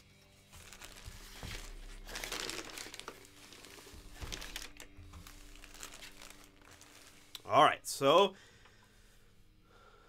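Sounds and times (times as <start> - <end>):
plastic bag rustling: 0.3 - 7.5
packing paper crinkling: 0.4 - 7.5.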